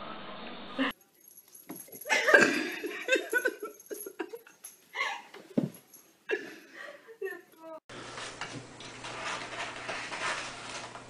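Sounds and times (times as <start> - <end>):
person laughing: 2.0 - 5.3.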